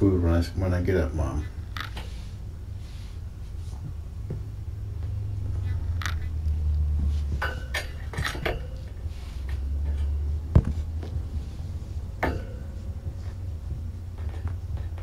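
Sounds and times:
steady low hum: 0.0 - 15.0
hard objects clinking and knocking: 7.3 - 9.0, 12.2 - 13.4.

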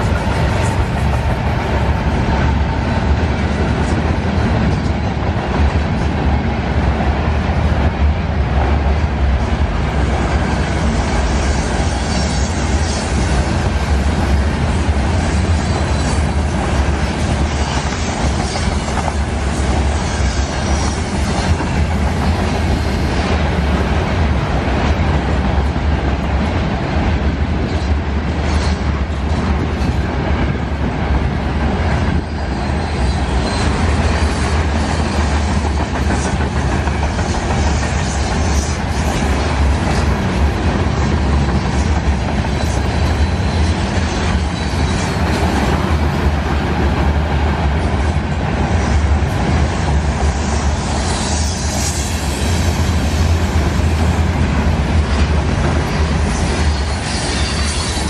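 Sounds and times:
train clattering over track: 0.0 - 58.0
train wheels rumbling on rail: 0.0 - 58.0
faint high wheel squeal: 32.2 - 35.6, 55.9 - 58.0.

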